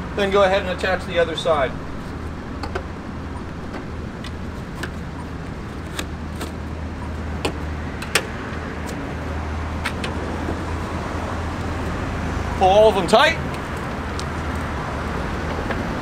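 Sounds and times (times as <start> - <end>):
traffic rumble: 0.0 - 16.0
strap hooks clicking on tailgate: 7.4 - 9.0.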